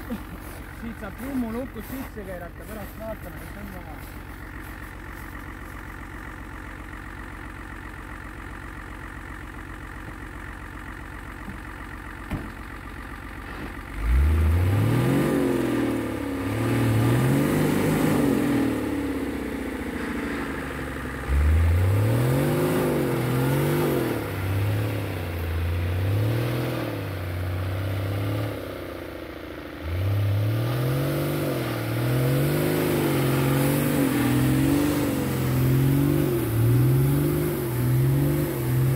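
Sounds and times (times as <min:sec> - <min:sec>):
diesel engine idling and revving: 0:00.0 - 0:38.9.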